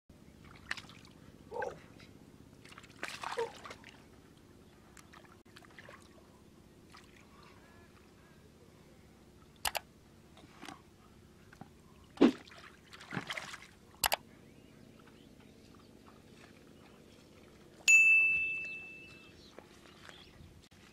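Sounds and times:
hands splashing in muddy water: 0:02.6 - 0:04.0, 0:12.2 - 0:13.8
sharp clicks: 0:09.6 - 0:09.9, 0:14.0 - 0:14.2.

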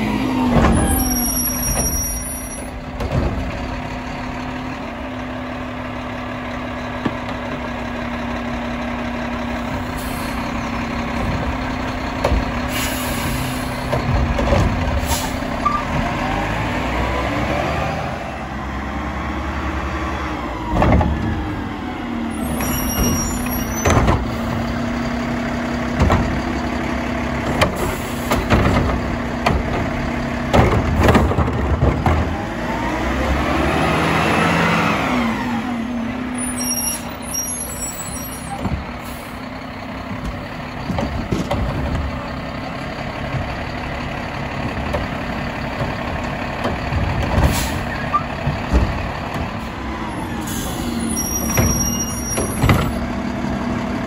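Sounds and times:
trash carts banging: 0:00.0 - 0:04.8, 0:09.6 - 0:16.3, 0:22.4 - 0:33.2, 0:36.9 - 0:53.2
garbage truck running: 0:00.0 - 0:54.0.

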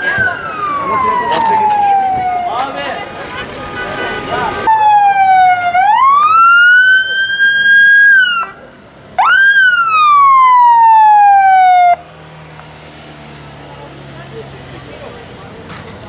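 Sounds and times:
ambulance siren wailing: 0:00.0 - 0:02.9, 0:04.7 - 0:08.6, 0:09.2 - 0:12.0.

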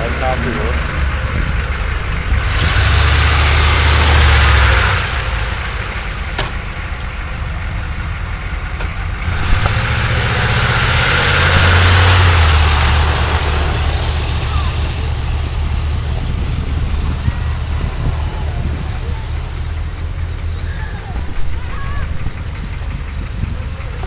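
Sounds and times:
diesel engine pulling through mud: 0:00.0 - 0:24.0
water and mud splashing: 0:09.2 - 0:20.1.

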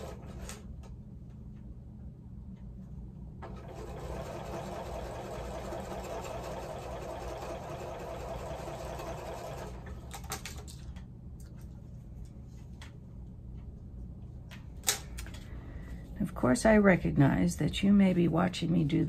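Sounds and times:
electric sewing machine stitching: 0:00.0 - 0:00.6, 0:03.4 - 0:10.2.

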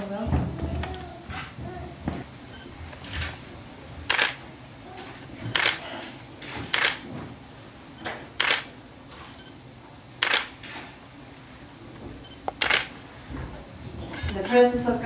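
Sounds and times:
camera shutter clicking: 0:04.1 - 0:04.4, 0:06.7 - 0:07.0, 0:08.4 - 0:08.7, 0:10.2 - 0:10.5, 0:12.6 - 0:12.9.

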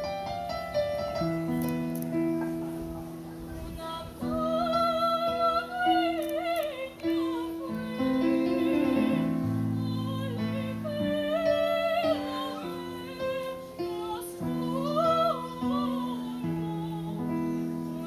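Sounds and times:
high voice singing with vibrato: 0:03.8 - 0:18.0.

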